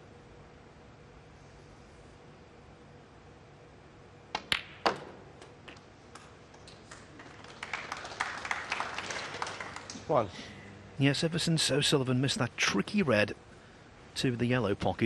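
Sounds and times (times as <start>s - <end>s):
snooker balls clicking together: 4.3s - 7.1s
light crowd clapping: 5.7s - 10.4s.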